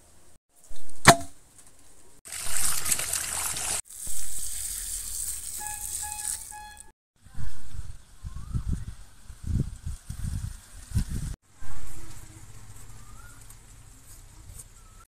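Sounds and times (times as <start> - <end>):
water splashing in a steel bowl: 2.3 - 6.9.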